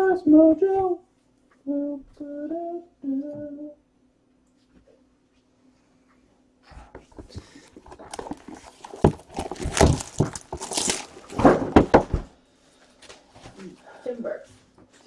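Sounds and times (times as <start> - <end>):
shrink-wrap tearing and crinkling: 7.7 - 11.8.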